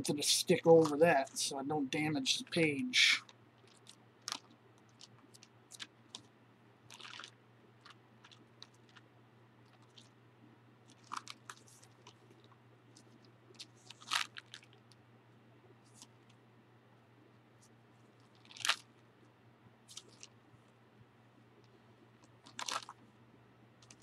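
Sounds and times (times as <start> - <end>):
paper pages rustling: 10.9 - 14.7, 19.9 - 20.3, 22.4 - 23.0
thin paper pages crackling: 10.9 - 14.9, 18.2 - 18.9, 19.9 - 20.3, 22.4 - 23.0.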